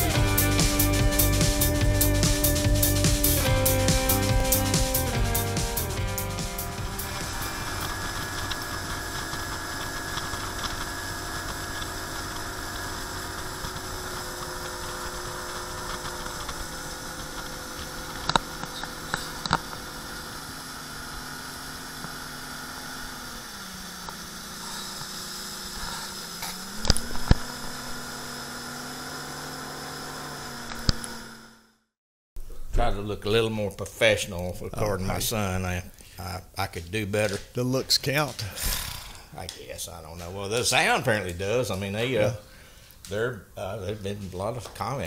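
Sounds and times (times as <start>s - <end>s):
outboard motor running: 0.0s - 31.8s.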